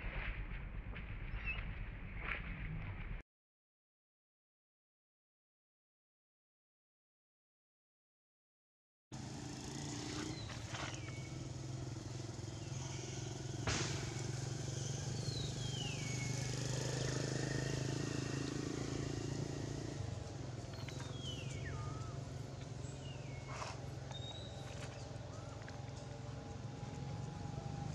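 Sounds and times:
low engine hum: 0:09.2 - 0:27.9.

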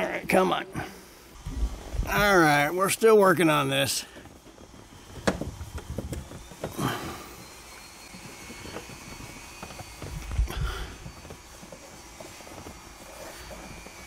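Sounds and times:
handling thumps and rustle: 0:04.1 - 0:07.4.

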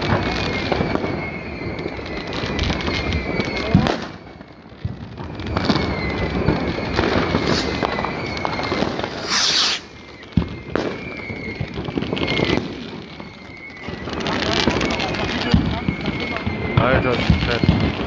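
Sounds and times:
firecracker bangs and crackles: 0:00.0 - 0:18.0
loud hissing rush: 0:09.1 - 0:09.9.

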